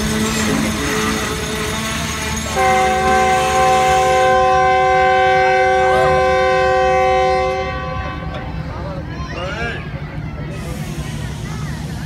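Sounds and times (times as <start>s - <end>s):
train rumbling on rails: 0.0s - 12.0s
train horn blast: 2.5s - 8.5s.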